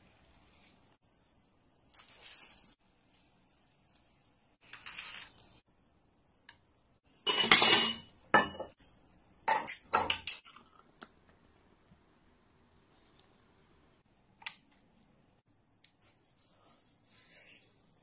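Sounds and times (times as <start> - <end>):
dishware clattering and clinking: 7.3 - 8.8, 9.5 - 10.7.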